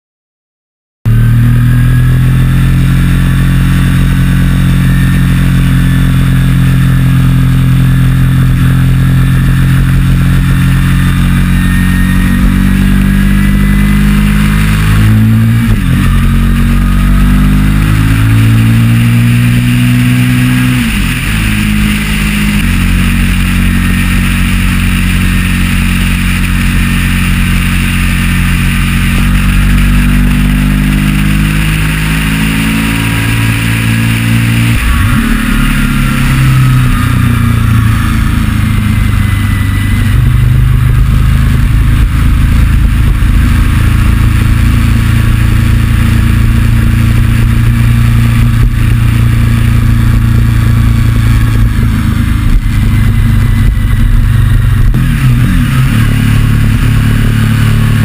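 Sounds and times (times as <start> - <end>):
motorcycle engine running: 1.1 - 58.0
wind rushing over microphone: 32.0 - 58.0.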